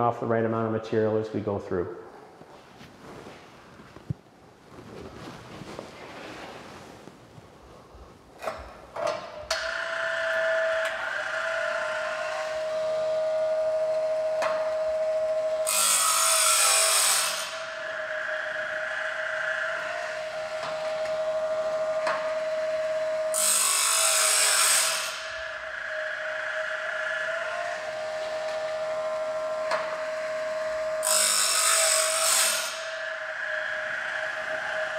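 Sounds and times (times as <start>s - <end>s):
sharpener motor whine: 9.5s - 34.9s
grinding disc rasping on blade: 9.6s - 13.4s, 15.6s - 34.9s.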